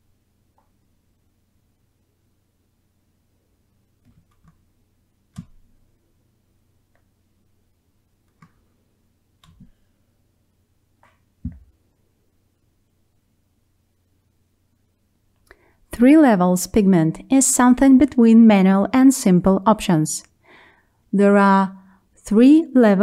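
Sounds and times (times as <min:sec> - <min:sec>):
faint steady hum: 0:00.0 - 0:23.0
computer mouse clicks: 0:04.0 - 0:04.6, 0:08.3 - 0:08.6.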